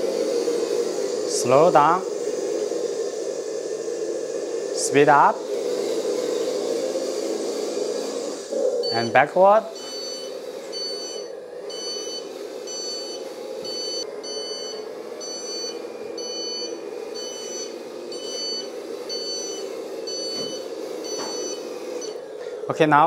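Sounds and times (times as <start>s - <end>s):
truck reversing beeper: 8.0s - 22.6s.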